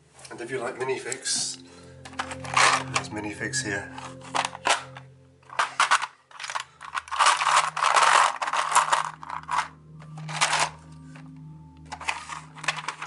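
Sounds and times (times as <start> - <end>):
plastic figures clattering in drawer: 2.0 - 3.1, 3.9 - 11.3, 11.9 - 13.0.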